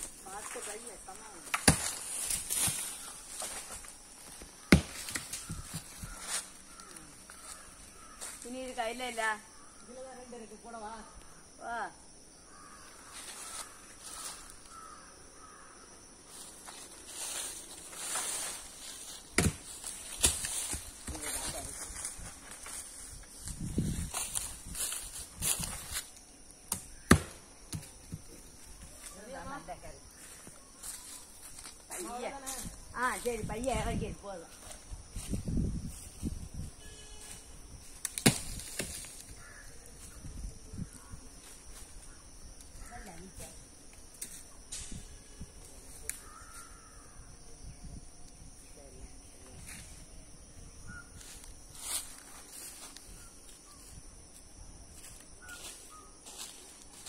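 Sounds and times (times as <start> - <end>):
high drone of insects: 0.0 - 57.0
outdoor background noise: 0.0 - 57.0
crow cawing: 4.6 - 8.6, 12.4 - 15.9, 39.4 - 39.9, 46.2 - 47.3.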